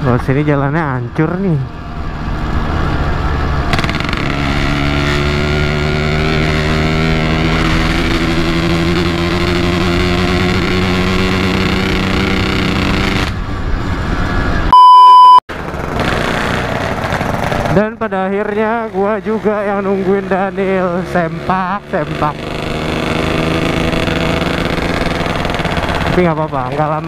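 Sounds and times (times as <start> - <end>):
two-stroke motorcycle engine: 3.1 - 13.4, 15.5 - 27.0
censor bleep: 14.7 - 15.4.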